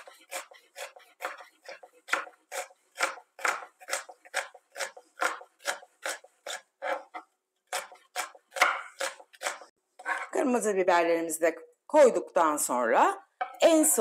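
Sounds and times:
knife chopping on cutting board: 0.0 - 10.3.

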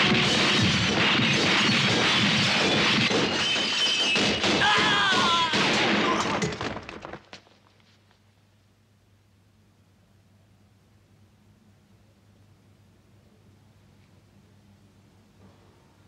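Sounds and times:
pistol shots: 0.0 - 6.6
glass shattering: 0.1 - 6.9
person crying out: 4.6 - 6.4.

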